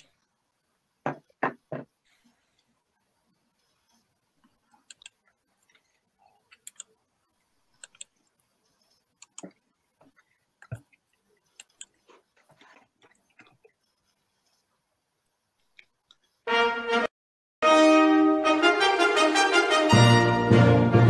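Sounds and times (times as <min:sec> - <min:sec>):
low background noise: 0:00.0 - 0:16.5
faint clicks and knocks: 0:09.2 - 0:13.8.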